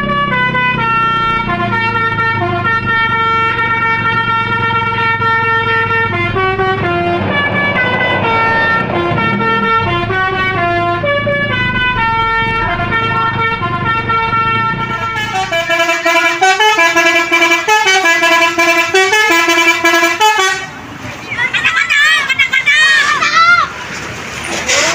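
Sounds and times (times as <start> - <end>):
coach horn playing melody: 0.1 - 20.7
coach engine running low: 4.4 - 21.8.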